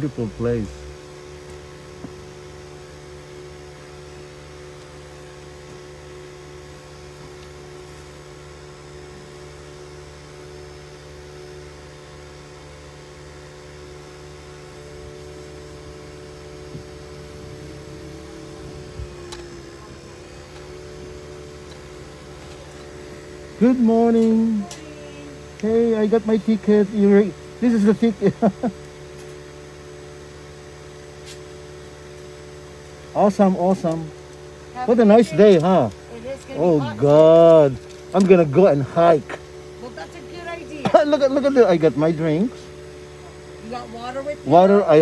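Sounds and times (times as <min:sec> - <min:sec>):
car idling from inside: 0:16.5 - 0:25.8.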